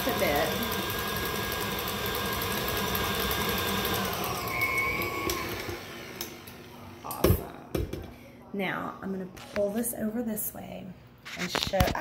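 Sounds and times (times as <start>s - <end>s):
stand mixer running: 0.0s - 7.0s.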